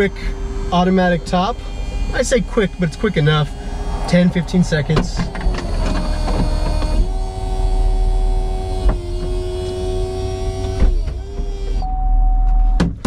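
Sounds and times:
engine idling rumble: 0:00.0 - 0:11.4
electric motors whining: 0:00.0 - 0:12.8.

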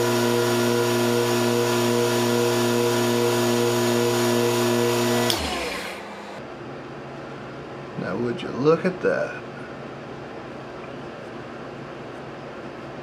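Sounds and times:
lathe motor humming: 0:00.0 - 0:06.4.

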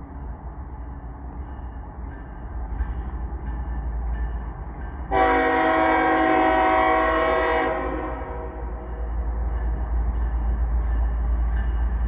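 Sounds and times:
train rumbling: 0:00.0 - 0:12.0
locomotive air horn blast: 0:05.1 - 0:08.8.

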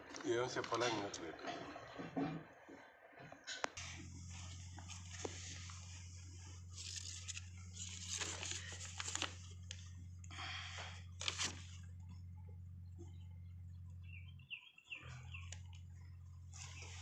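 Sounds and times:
steady low hum: 0:00.0 - 0:17.0
paper leaflet crinkling: 0:04.0 - 0:12.0.

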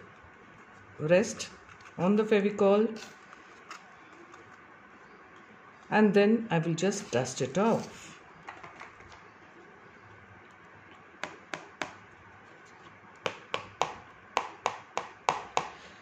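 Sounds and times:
paper card tapping plastic tray: 0:13.2 - 0:15.7.

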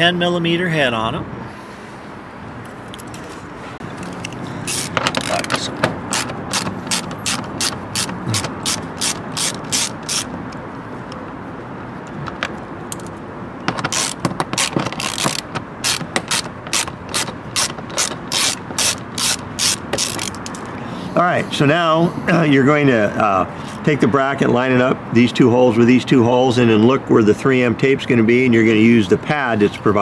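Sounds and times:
ratchet pawl clicking: 0:04.2 - 0:10.3, 0:13.9 - 0:20.6.

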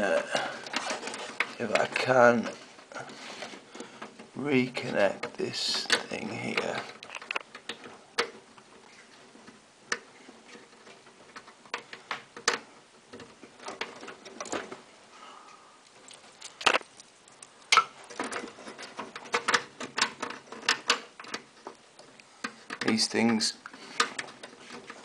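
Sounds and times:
cables being handled: 0:00.0 - 0:15.1, 0:15.8 - 0:25.0.

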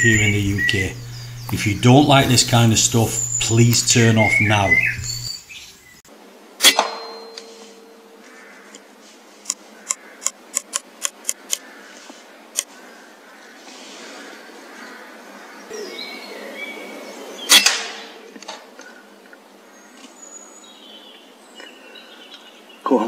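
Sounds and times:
rapid sharp clicks: 0:09.5 - 0:11.6.

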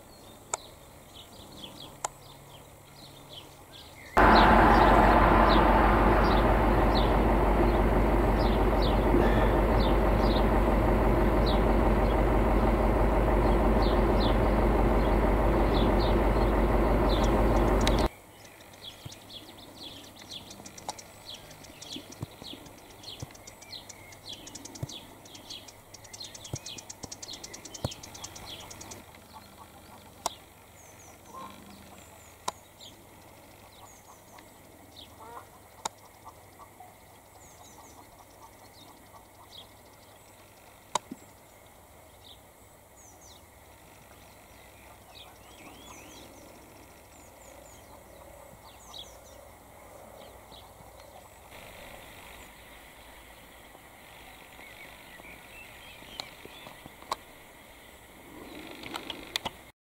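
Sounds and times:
loud steady low noise: 0:04.2 - 0:18.1
small bird chirping: 0:06.2 - 0:41.6.

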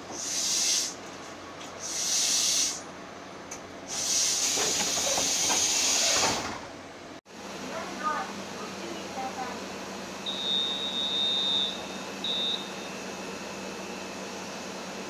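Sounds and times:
compressed air hissing from train: 0:00.0 - 0:01.0, 0:01.8 - 0:02.9, 0:03.8 - 0:06.4.

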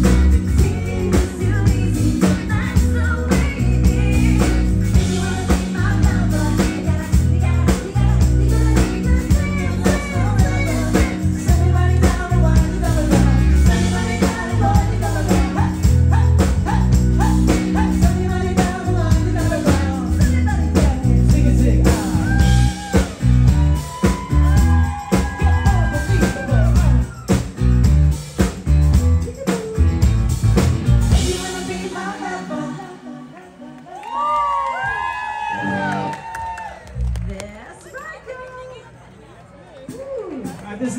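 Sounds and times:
live band playing: 0:00.0 - 0:38.9
woman singing into microphone: 0:00.1 - 0:23.0, 0:31.1 - 0:34.8.

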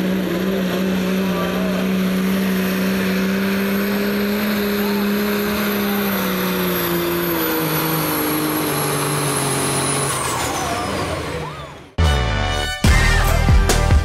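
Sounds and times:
diesel engine under heavy load: 0:00.0 - 0:14.0
music with a beat: 0:12.7 - 0:14.0.

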